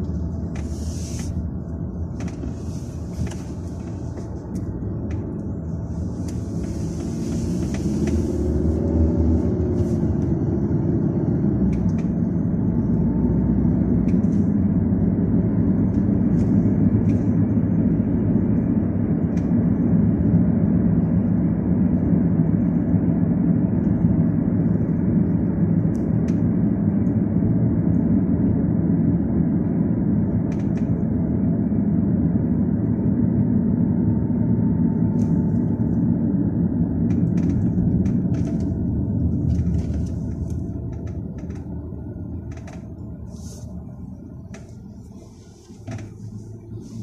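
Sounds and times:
car cabin road rumble: 0:00.0 - 0:47.0.

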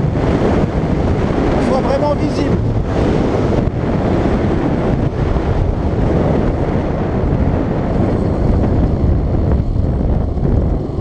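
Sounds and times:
road noise: 0:00.0 - 0:11.0
wind rushing over microphone: 0:00.0 - 0:11.0
motorcycle engine running: 0:02.5 - 0:11.0.

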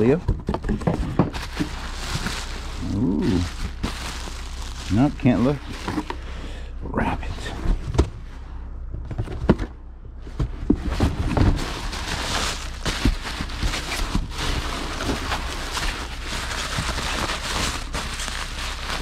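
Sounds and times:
packing material rustling: 0:00.9 - 0:06.2, 0:10.8 - 0:19.0.

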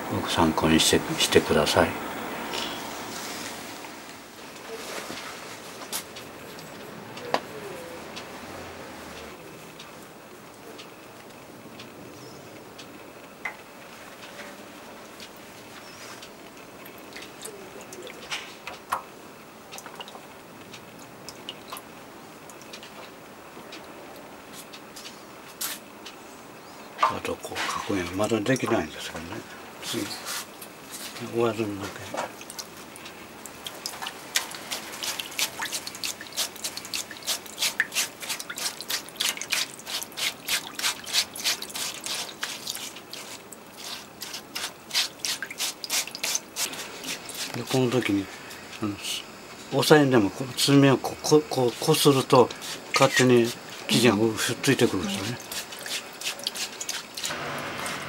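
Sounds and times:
light water splashes: 0:29.8 - 0:48.2, 0:51.8 - 0:58.0
wet cloth rubbed in water: 0:33.9 - 0:47.8, 0:52.5 - 0:58.0.

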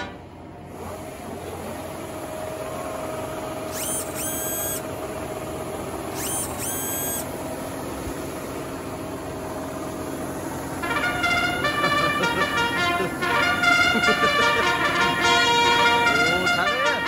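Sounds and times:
combine harvester drone: 0:00.0 - 0:17.0
high whistle-like tones: 0:03.7 - 0:04.9, 0:06.2 - 0:07.3.

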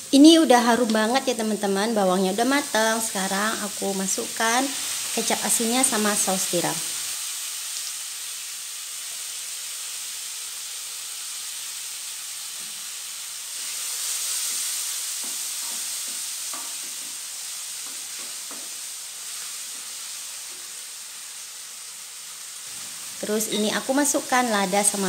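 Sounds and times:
food sizzling in oil: 0:00.0 - 0:25.0
spatula scraping and tapping: 0:17.8 - 0:18.8.

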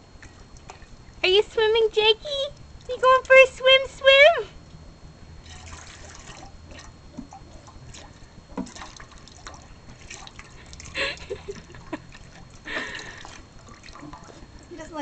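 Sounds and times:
water drips and splashes: 0:05.4 - 0:15.0.

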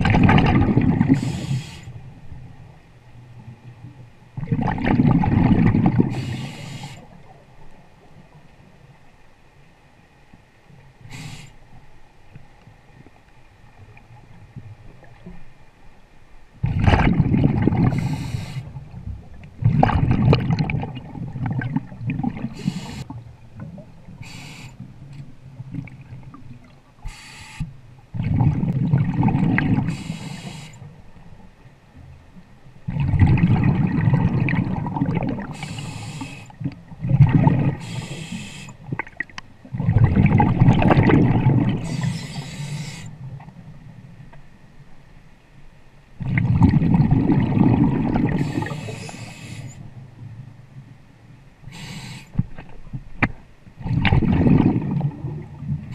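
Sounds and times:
exhaled bubbles rushing underwater: 0:00.0 - 0:02.8, 0:03.4 - 0:08.6, 0:16.6 - 0:24.4, 0:25.5 - 0:27.0, 0:28.1 - 0:30.6, 0:32.8 - 0:43.9, 0:46.2 - 0:50.4, 0:53.8 - 0:55.9
regulator inhalation hiss: 0:01.2 - 0:02.0, 0:06.1 - 0:07.1, 0:11.1 - 0:11.6, 0:18.0 - 0:18.7, 0:22.6 - 0:23.1, 0:24.2 - 0:24.8, 0:27.1 - 0:27.7, 0:29.9 - 0:30.8, 0:35.5 - 0:36.6, 0:37.8 - 0:38.8, 0:41.8 - 0:43.1, 0:48.4 - 0:49.8, 0:51.7 - 0:52.4.

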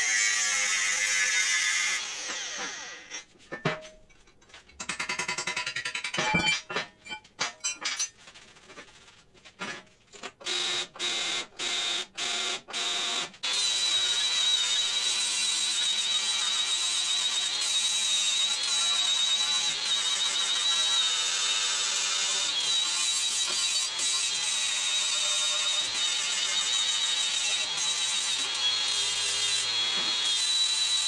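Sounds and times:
tools and steel clinking: 0:03.5 - 0:08.3.

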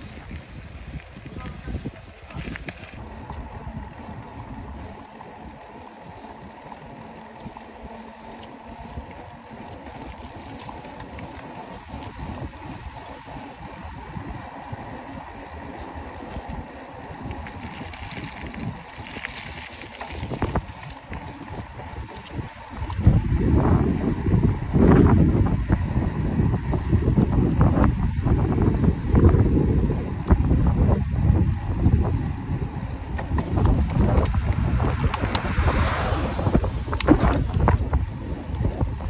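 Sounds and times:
wind rushing over microphone: 0:00.0 - 0:05.6, 0:11.2 - 0:39.0.

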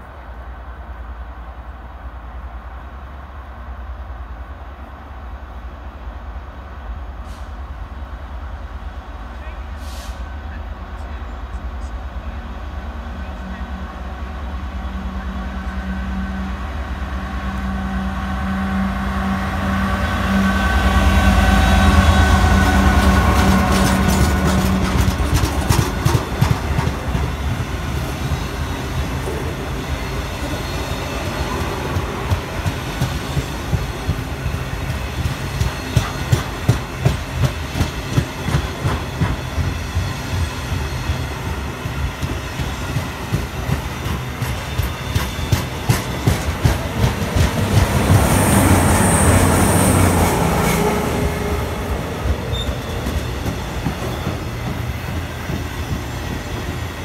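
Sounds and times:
freight train rumbling past: 0:00.0 - 0:57.0
wheels clicking over rail joints: 0:23.3 - 0:27.6
high-pitched wheel squeal: 0:52.4 - 0:53.3.

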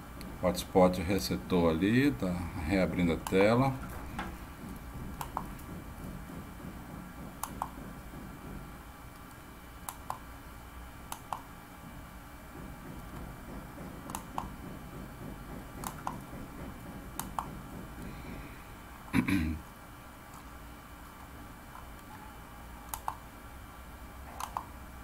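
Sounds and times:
low background hum: 0:00.0 - 0:25.0
computer mouse clicking: 0:05.2 - 0:05.6, 0:07.4 - 0:07.8, 0:09.1 - 0:10.2, 0:11.1 - 0:11.5, 0:14.0 - 0:14.5, 0:15.8 - 0:16.3, 0:17.2 - 0:17.5, 0:22.9 - 0:23.2, 0:24.3 - 0:24.7.

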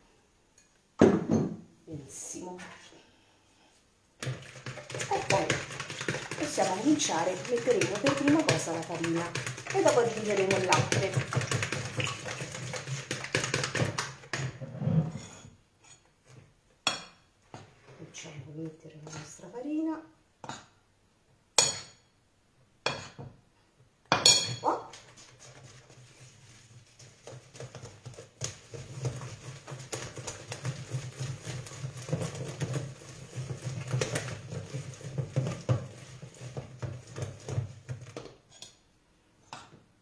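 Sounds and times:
whisk beating eggs in a bowl: 0:04.2 - 0:14.6, 0:24.9 - 0:38.4
whisk tapping bowl: 0:04.2 - 0:14.6, 0:24.9 - 0:38.4.

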